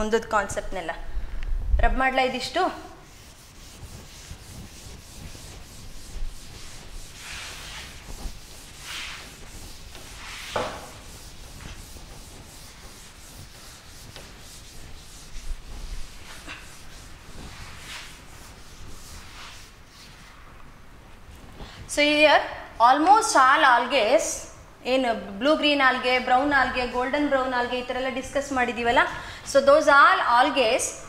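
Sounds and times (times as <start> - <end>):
duster wiping chalkboard: 2.4 - 20.4.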